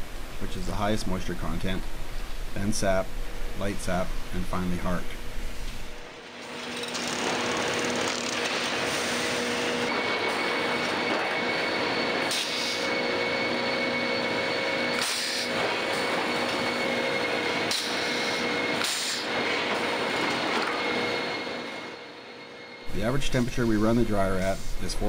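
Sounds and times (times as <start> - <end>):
machine hum tones: 0.0 - 25.0
machinery din: 6.2 - 23.2.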